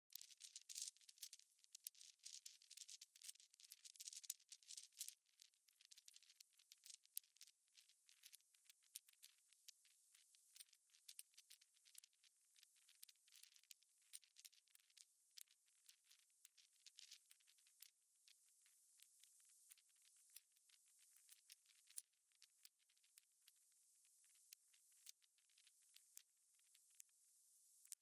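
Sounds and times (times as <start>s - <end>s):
grit crackling under a person: 0.1s - 28.0s.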